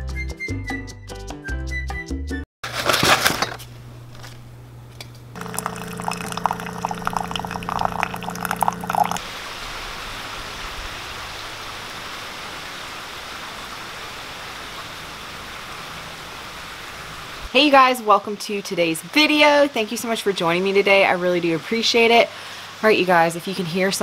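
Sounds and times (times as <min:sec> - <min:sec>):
steady hum and crackling: 0:02.7 - 0:09.2
hot water pouring into a mug: 0:05.4 - 0:09.2
rain falling: 0:05.4 - 0:17.5.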